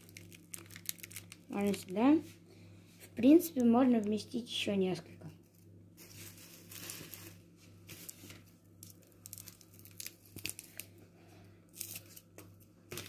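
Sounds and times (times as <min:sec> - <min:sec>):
rustling onion skins and newspaper: 0:00.0 - 0:02.4, 0:05.9 - 0:11.0, 0:11.7 - 0:13.0.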